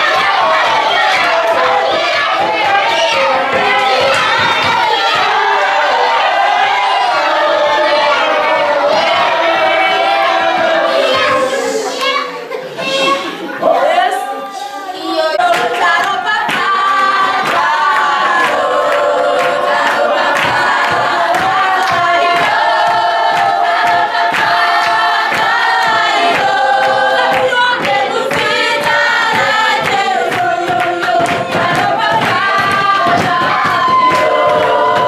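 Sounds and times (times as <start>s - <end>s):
children singing: 0.0s - 35.0s
hand-clapping: 15.4s - 35.0s.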